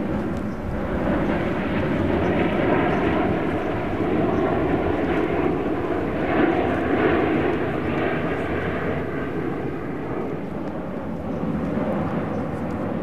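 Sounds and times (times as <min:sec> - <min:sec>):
jet airliner flying overhead: 0:00.0 - 0:13.0.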